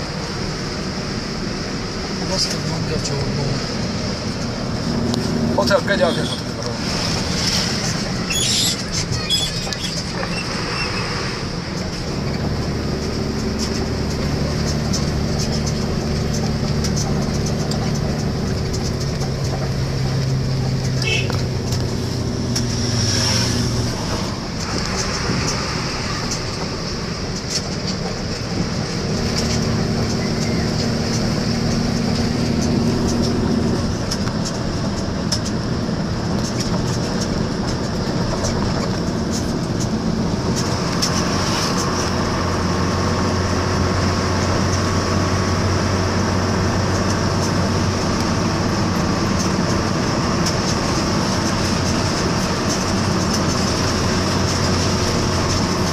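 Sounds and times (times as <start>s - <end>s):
vehicle engine and road noise: 0.0s - 55.9s.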